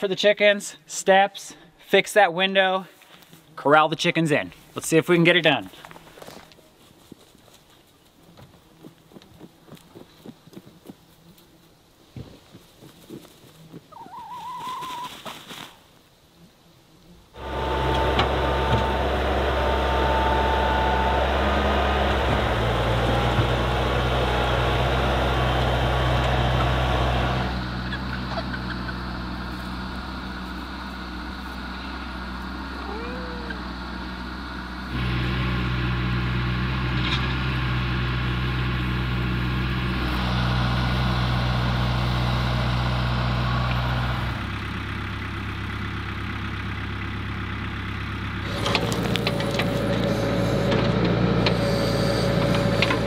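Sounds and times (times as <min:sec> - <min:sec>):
tractor engine running: 0:17.4 - 0:53.0.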